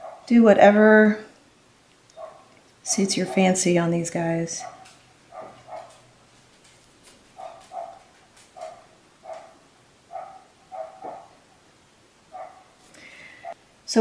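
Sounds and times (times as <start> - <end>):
dog barking: 0.0 - 0.3, 2.2 - 2.5, 4.6 - 6.1, 7.4 - 11.4, 12.3 - 12.8.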